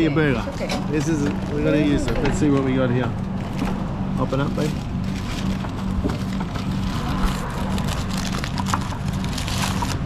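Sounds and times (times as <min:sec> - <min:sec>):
low pulsing mechanical hum: 0:00.0 - 0:10.0
paper wrapper crinkling: 0:04.6 - 0:10.0.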